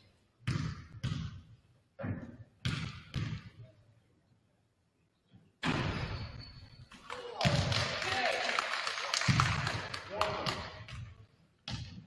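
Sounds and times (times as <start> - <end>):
basketball bouncing on hardwood floor: 0.4 - 1.4, 2.0 - 3.5, 10.9 - 12.0.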